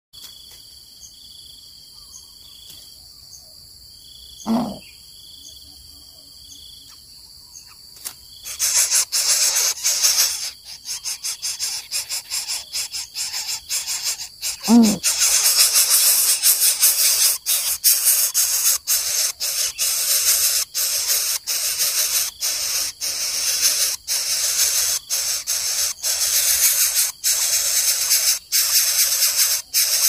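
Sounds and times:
crickets chirping: 0:00.2 - 0:30.0
short low bird call: 0:04.5 - 0:04.9, 0:14.6 - 0:15.0.

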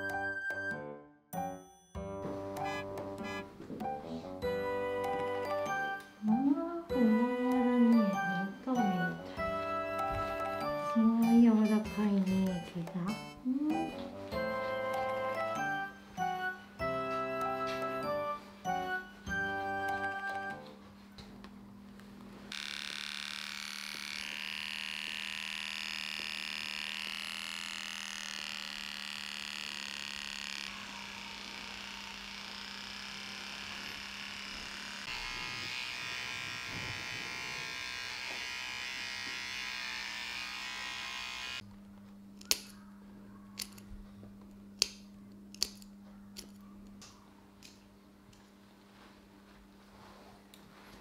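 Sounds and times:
electric clippers buzzing: 0:02.5 - 0:03.5, 0:07.0 - 0:20.6, 0:22.5 - 0:41.7
nail clipper clicks: 0:42.4 - 0:42.8, 0:43.6 - 0:43.8, 0:44.8 - 0:47.8.

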